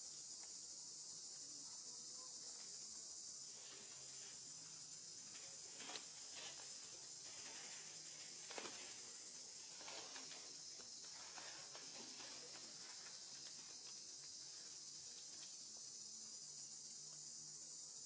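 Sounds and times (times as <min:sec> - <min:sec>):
insect chorus: 0:00.0 - 0:18.0
dry leaves crackling: 0:05.1 - 0:15.6.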